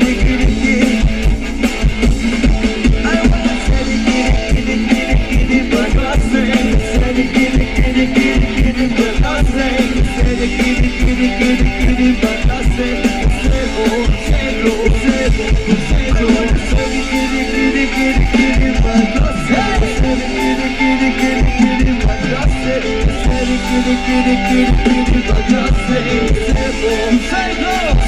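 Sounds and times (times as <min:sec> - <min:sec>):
live band music: 0:00.0 - 0:28.0
subwoofer bass beat: 0:00.0 - 0:28.0.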